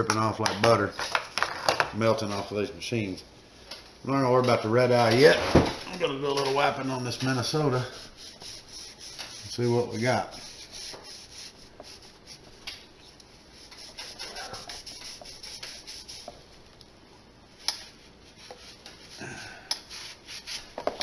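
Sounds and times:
rag rubbing on metal: 0:06.9 - 0:12.4, 0:13.5 - 0:16.4.

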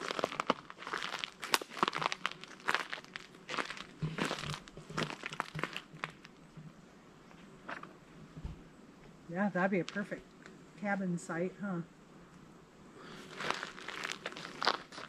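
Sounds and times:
footsteps crunching on dry litter: 0:00.0 - 0:06.5, 0:13.0 - 0:15.0.

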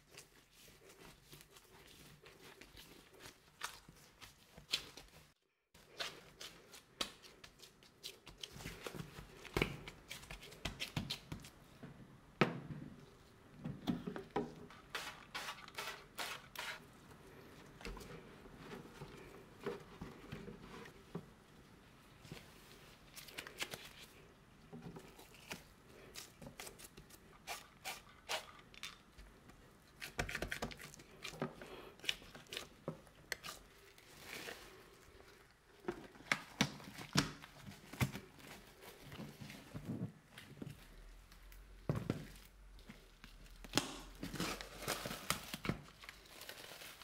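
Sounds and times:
hands working bread dough: 0:00.0 - 0:47.0.

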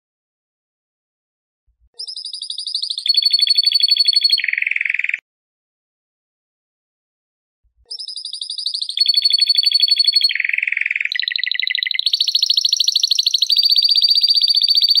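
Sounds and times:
canary singing trills: 0:02.0 - 0:05.2, 0:07.9 - 0:15.0.

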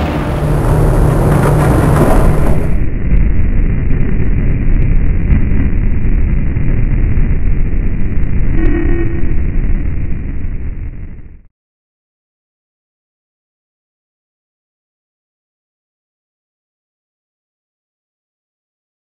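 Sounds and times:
low rumbling noise: 0:00.0 - 0:11.5
short pitched tone: 0:08.5 - 0:09.8.

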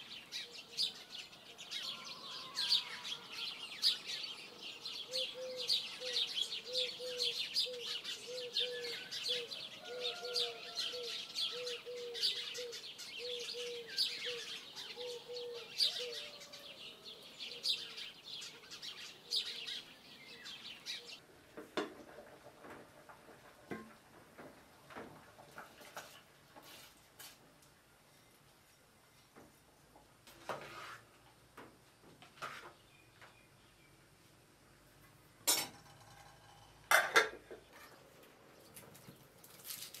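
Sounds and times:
birds chirping and twittering: 0:00.0 - 0:21.2.

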